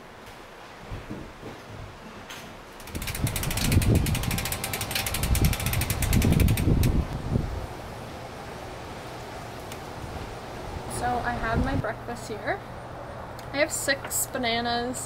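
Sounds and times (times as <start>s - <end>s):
bicycle freewheel ticking: 2.8s - 7.0s
wind rumble on microphone: 2.9s - 7.8s, 11.2s - 11.9s.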